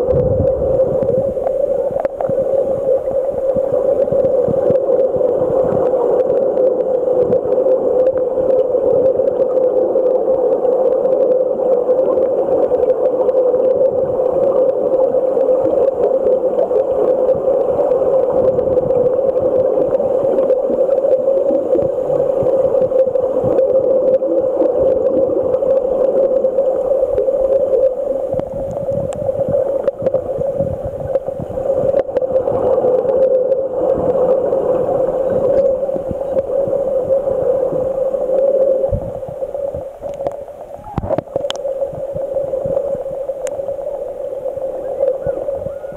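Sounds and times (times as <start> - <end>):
muffled underwater rushing: 0.0 - 45.9.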